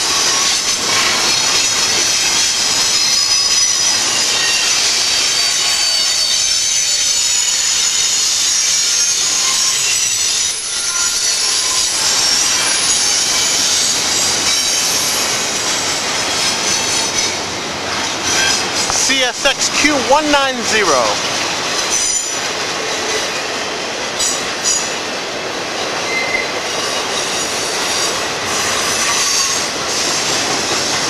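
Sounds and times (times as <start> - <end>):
train wheels squealing: 0.0 - 18.8, 26.0 - 31.0
wheels rushing on rails: 21.2 - 31.0.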